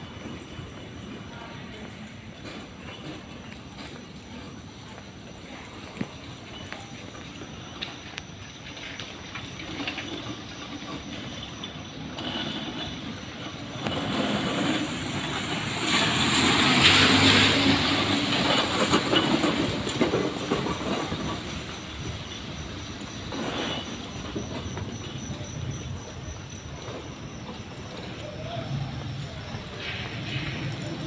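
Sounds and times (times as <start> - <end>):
large vehicle passing: 13.8 - 21.6.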